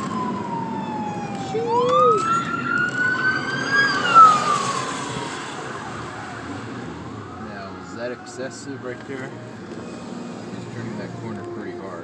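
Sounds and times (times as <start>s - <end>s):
siren wailing: 0.0s - 9.5s
road noise of moving car: 0.0s - 12.0s.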